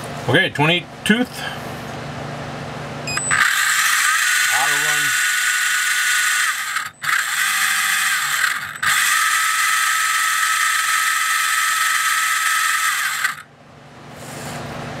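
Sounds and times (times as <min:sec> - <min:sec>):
electric motor high-pitched whine: 0:03.1 - 0:13.5.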